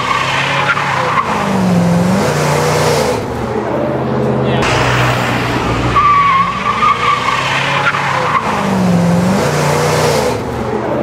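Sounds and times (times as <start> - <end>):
truck engine revving: 0.0 - 4.0, 4.6 - 10.9
tyres squealing: 6.0 - 9.2.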